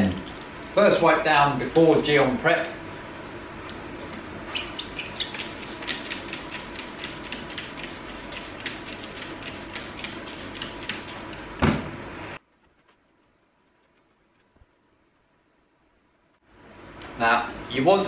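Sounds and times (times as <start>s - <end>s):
cloth rubbing car paintwork: 4.4s - 11.3s
loud thump: 11.6s - 12.0s.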